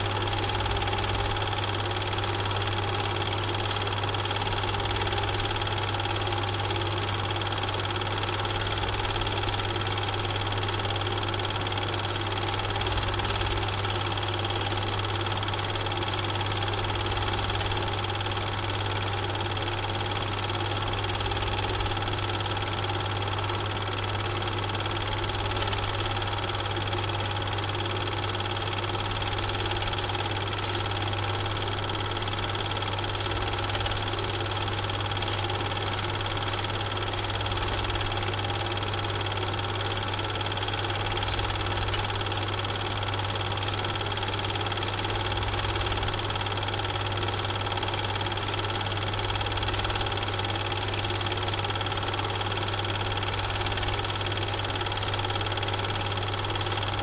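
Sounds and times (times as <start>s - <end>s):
film projector running: 0.0s - 57.0s.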